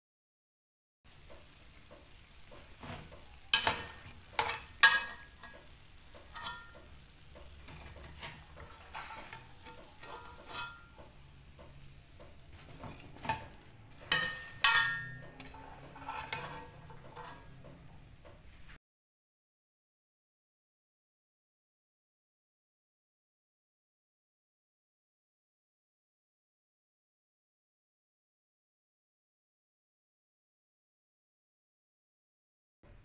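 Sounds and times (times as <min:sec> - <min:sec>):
faint sizzle of frying oil: 0:01.1 - 0:18.8
metal skimmer clinking on pan: 0:02.8 - 0:12.3, 0:13.0 - 0:17.6.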